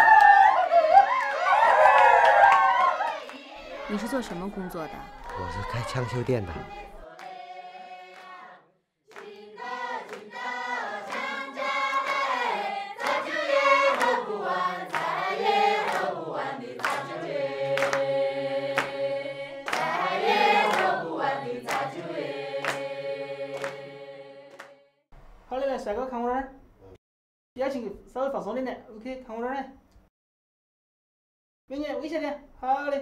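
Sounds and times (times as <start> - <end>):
choir singing: 2.7 - 24.8.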